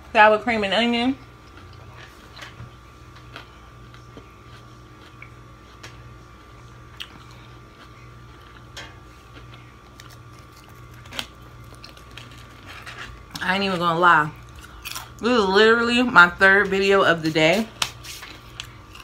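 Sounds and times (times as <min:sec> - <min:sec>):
potato chips crunching: 0:03.2 - 0:15.2, 0:17.8 - 0:19.0.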